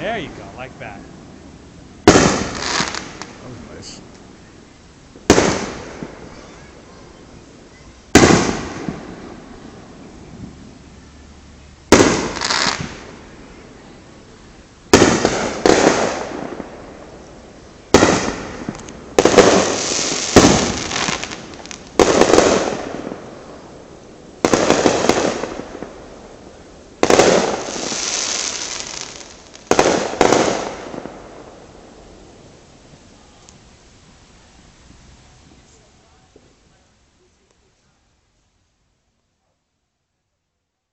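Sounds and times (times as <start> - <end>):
firework shells booming: 2.0 - 4.0, 5.2 - 6.6, 8.1 - 9.8, 11.9 - 13.2, 14.9 - 17.0, 17.9 - 23.7, 27.0 - 31.7.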